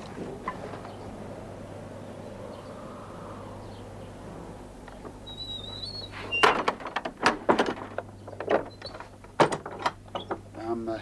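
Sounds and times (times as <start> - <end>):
steady low hum: 0.0 - 11.0
door creaking: 5.3 - 10.4
latch and bolts clacking: 6.3 - 10.4.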